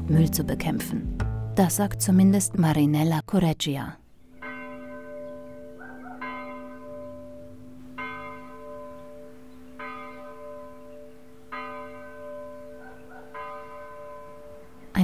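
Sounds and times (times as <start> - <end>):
church bell tolling: 4.2 - 15.0.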